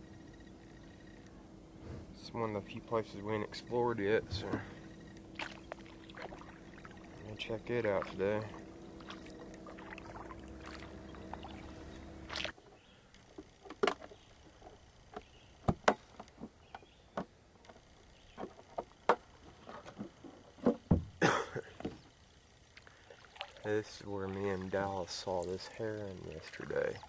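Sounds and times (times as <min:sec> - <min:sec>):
steady hum: 0:00.0 - 0:27.0
paddle splashing water: 0:04.3 - 0:12.5, 0:22.9 - 0:27.0.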